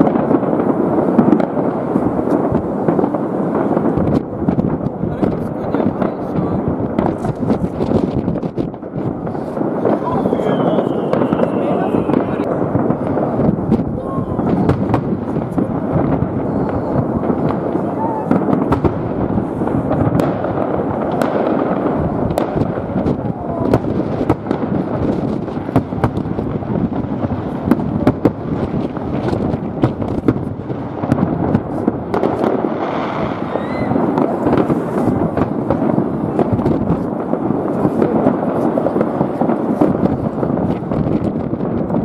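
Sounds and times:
fireworks crackle and rumble: 0.0s - 42.0s
sharp firework bangs: 0.0s - 42.0s
rising firework whistle: 9.3s - 12.6s, 13.7s - 18.9s, 31.7s - 35.6s.

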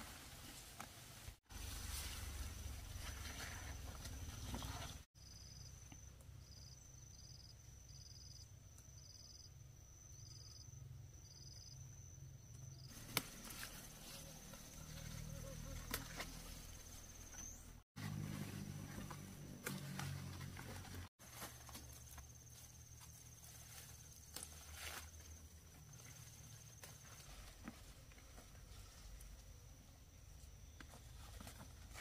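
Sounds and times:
rustling of leaves and vines: 0.0s - 5.1s, 12.9s - 32.0s
insects chirping: 3.4s - 17.8s, 21.4s - 31.9s.

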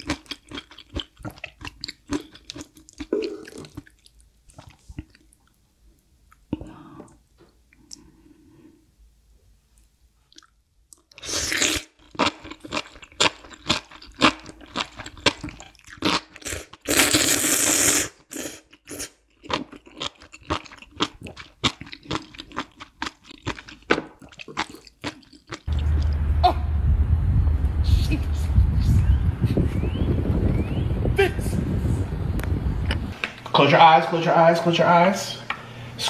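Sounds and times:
wet chewing smacks: 0.0s - 5.6s, 10.3s - 11.2s, 12.1s - 16.9s, 18.7s - 26.1s
loud noodle slurps: 11.2s - 12.4s, 14.2s - 19.2s
steady low rumble: 25.7s - 33.2s.

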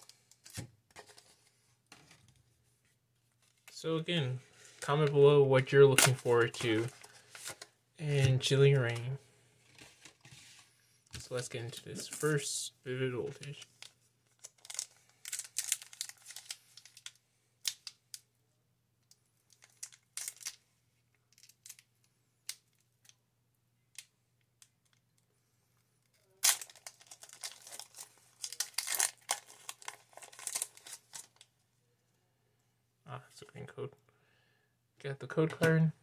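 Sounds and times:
foil wrapper tearing and crinkling: 14.4s - 17.1s, 26.4s - 31.4s.

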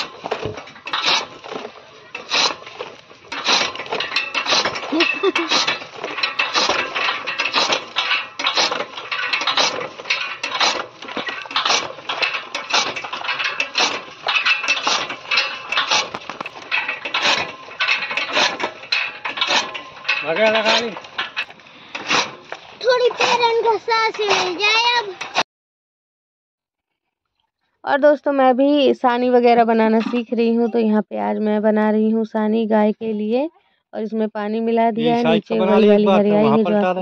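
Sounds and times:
iron mechanism clinking: 0.0s - 25.4s
metallic blade chop: 22.0s - 22.4s, 23.1s - 23.4s.

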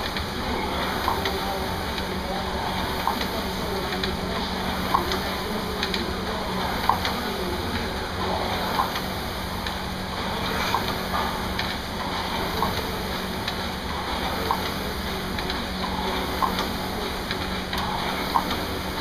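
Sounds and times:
rowing machine clack: 0.0s - 19.0s
rowing machine flywheel whoosh: 8.0s - 13.1s.

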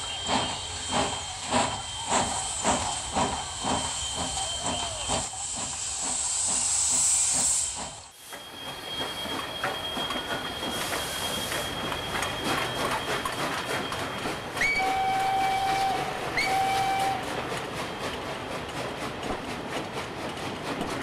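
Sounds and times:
locomotive and wagons rattling: 8.3s - 21.0s
steam locomotive whistle: 14.5s - 17.4s.

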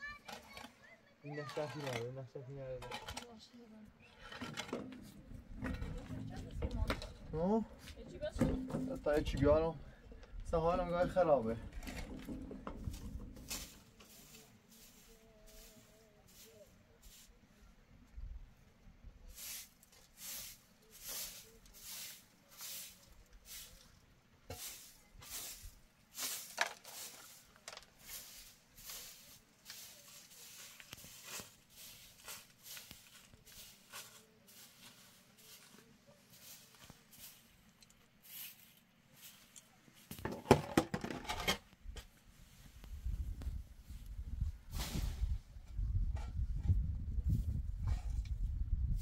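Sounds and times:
rough scraping on ground: 0.0s - 9.4s, 10.6s - 17.4s, 19.3s - 49.0s
broom sweeping dirt: 4.3s - 6.9s, 10.9s - 17.8s, 19.2s - 40.6s, 41.4s - 49.0s.

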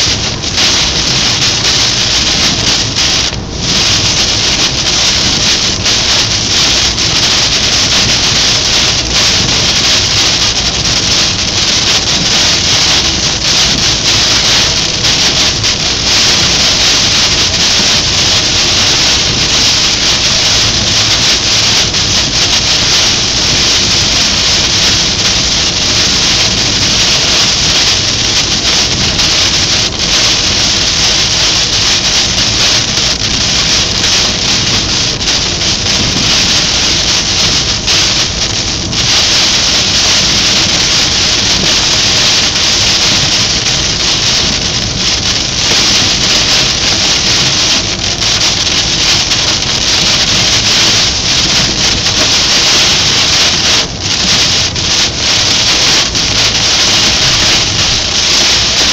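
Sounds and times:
heavy rain on car roof: 0.0s - 58.9s.

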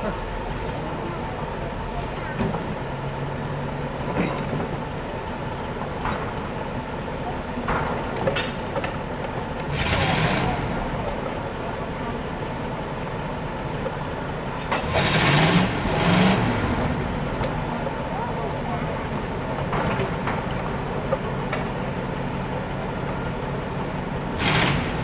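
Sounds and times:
steam engine running: 9.0s - 25.0s
loud steam hissing burst: 24.3s - 25.0s.

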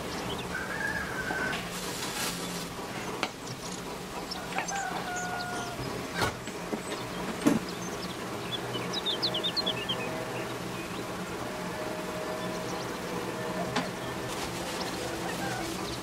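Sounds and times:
whistled bird calls: 0.0s - 1.6s, 6.9s - 11.1s
steady low hum: 0.0s - 16.0s.

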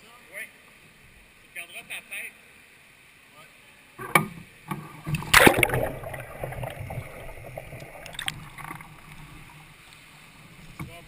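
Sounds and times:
water sloshing around hull: 4.7s - 11.0s
loud splash: 5.2s - 9.1s.

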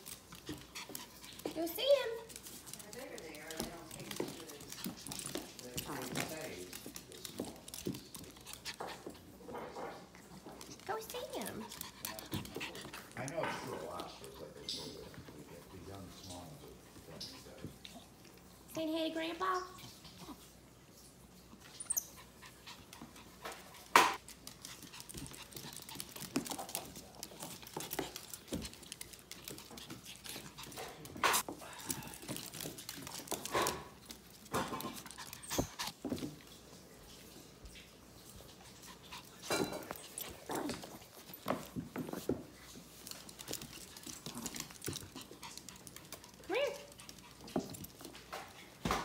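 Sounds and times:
scuffles and bumps on wooden floor: 39.7s - 45.2s.

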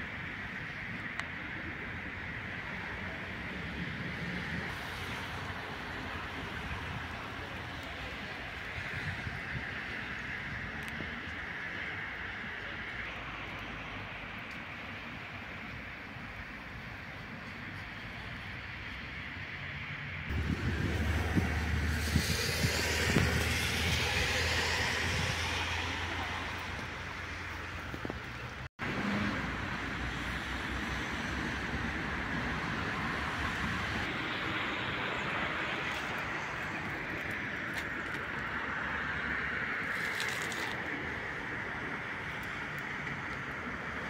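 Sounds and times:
road traffic: 0.0s - 44.0s
wind on microphone: 2.9s - 12.6s, 20.3s - 29.4s
deep rumble: 20.3s - 28.7s.

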